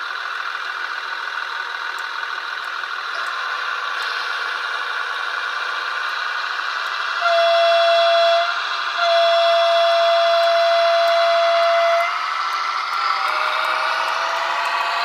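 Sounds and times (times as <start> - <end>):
model train running hum: 0.0 - 15.0
model train horn blasts: 7.1 - 12.3.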